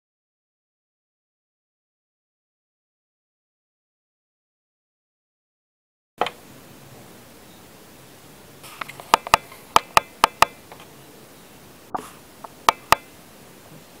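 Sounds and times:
sharp clicking taps: 0:08.8 - 0:10.9, 0:12.4 - 0:13.1.

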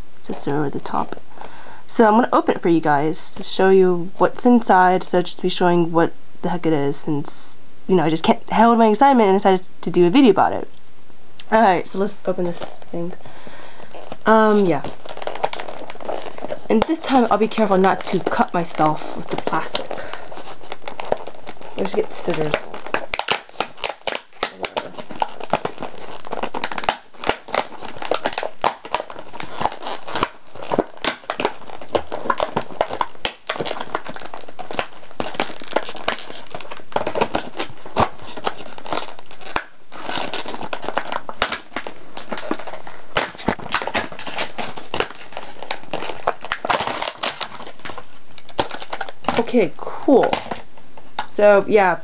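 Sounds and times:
plastic packaging crinkling: 0:12.4 - 0:51.3.

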